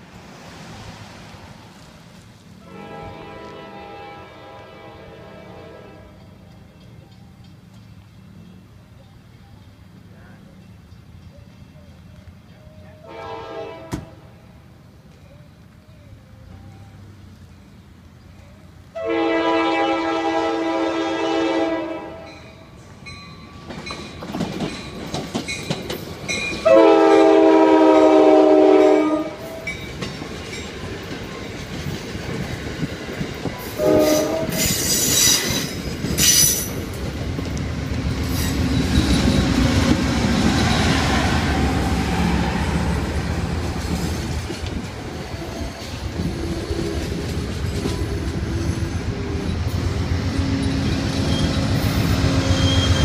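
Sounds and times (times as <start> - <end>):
rolling rumble of train cars: 0.0 - 53.0
train air horn blasts: 2.6 - 6.4, 13.0 - 14.4, 19.0 - 22.5, 26.6 - 29.8, 33.7 - 36.7.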